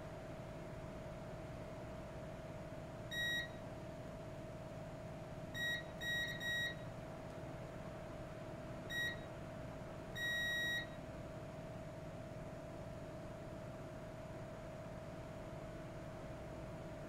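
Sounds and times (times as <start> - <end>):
multimeter short high beeps: 3.1 - 3.6, 5.6 - 6.8, 8.9 - 9.3, 10.2 - 11.0.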